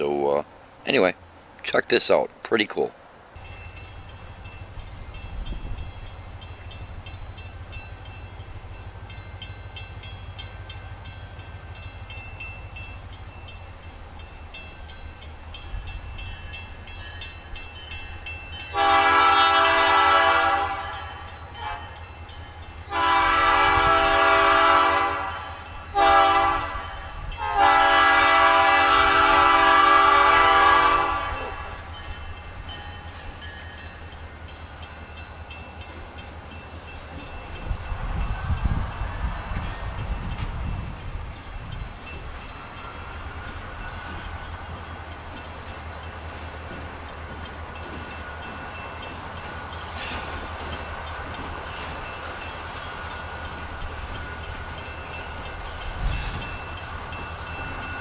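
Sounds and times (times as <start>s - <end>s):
diesel locomotive rumbling: 0.0s - 58.0s
locomotive air horn blasts: 18.7s - 22.0s, 22.9s - 31.8s.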